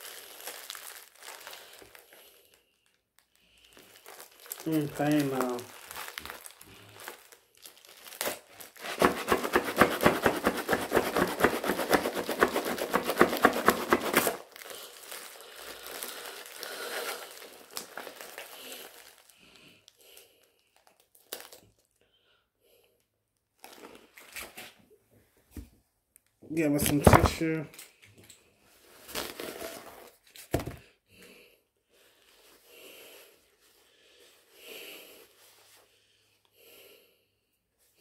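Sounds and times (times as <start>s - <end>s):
plastic bag crinkling: 0.0s - 21.9s.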